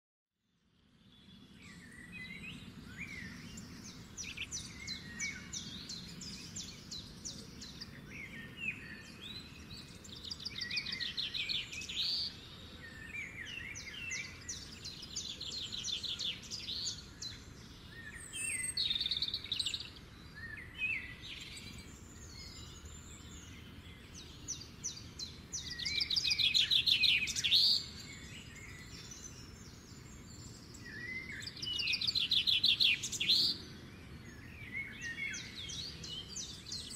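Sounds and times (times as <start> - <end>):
songbirds singing: 0.4 - 36.9.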